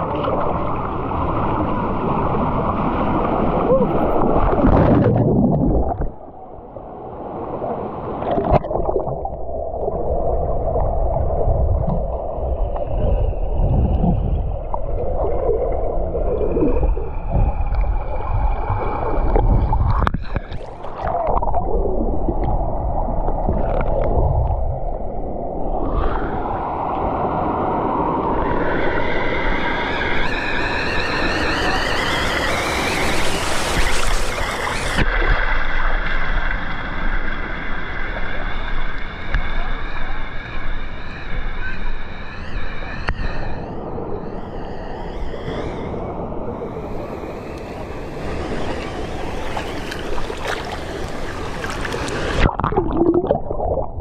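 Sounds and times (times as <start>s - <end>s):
muffled underwater rushing and gurgling: 0.0s - 54.0s
waterfall splashing: 31.3s - 35.0s.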